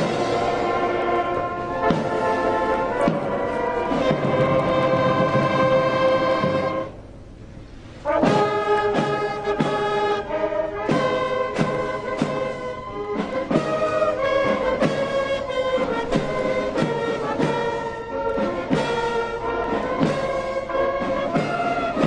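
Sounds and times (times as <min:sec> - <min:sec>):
military brass band playing: 0:00.0 - 0:22.0.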